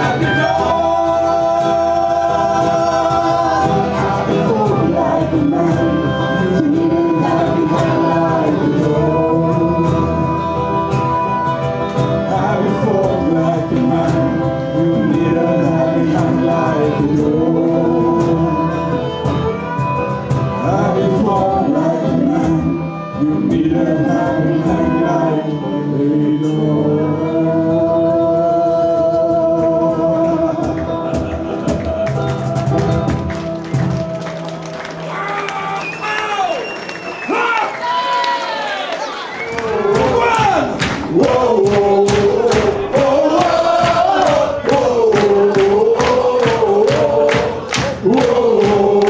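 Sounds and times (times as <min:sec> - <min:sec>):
voices singing together: 0:00.0 - 0:19.6, 0:20.4 - 0:34.6, 0:38.6 - 0:49.0
strummed acoustic guitar: 0:00.0 - 0:25.5.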